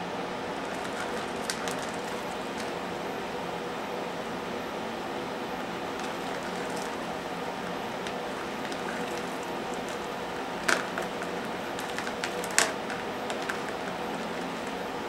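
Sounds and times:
steady hum: 0:00.0 - 0:15.0
cockroaches clicking: 0:00.6 - 0:03.0, 0:05.6 - 0:15.0.

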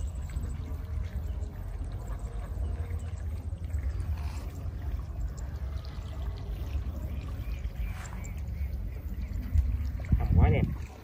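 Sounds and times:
constant low rumble: 0:00.0 - 0:11.0
water trickling and splashing: 0:00.0 - 0:11.0.

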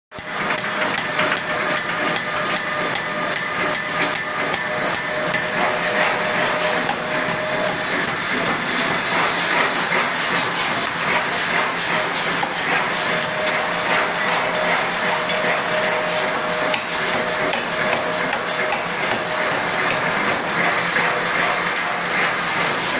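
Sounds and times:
machine clatter: 0:00.1 - 0:22.9
steady machine hum: 0:00.2 - 0:22.9.

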